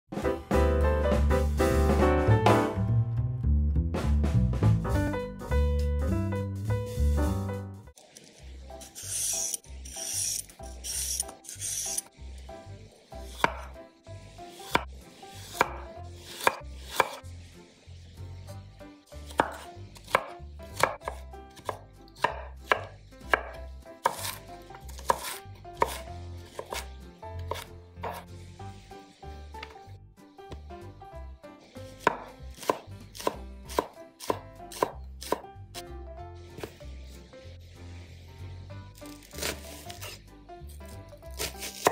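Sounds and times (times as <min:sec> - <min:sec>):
vegetable peeler scraping carrot: 0:08.0 - 0:12.2, 0:13.2 - 0:29.7, 0:31.6 - 0:35.4, 0:37.6 - 0:41.9
knife chopping on cutting board: 0:13.3 - 0:13.8, 0:14.6 - 0:17.2, 0:19.3 - 0:28.2, 0:31.9 - 0:35.4, 0:36.6 - 0:36.8, 0:39.0 - 0:40.2, 0:41.3 - 0:41.9.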